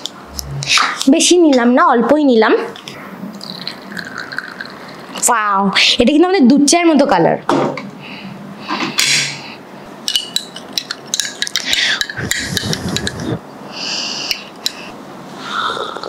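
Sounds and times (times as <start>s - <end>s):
teaspoon clinking against glass cup: 10.1s - 13.2s
slurping sips: 15.4s - 16.0s.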